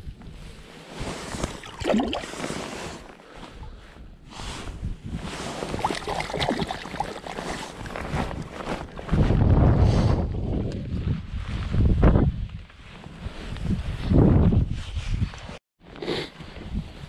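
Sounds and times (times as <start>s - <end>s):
hands swishing in water: 1.0s - 3.2s, 5.2s - 9.2s
water splashing and sloshing: 1.0s - 3.7s, 5.3s - 9.2s
wind on microphone: 3.6s - 15.6s.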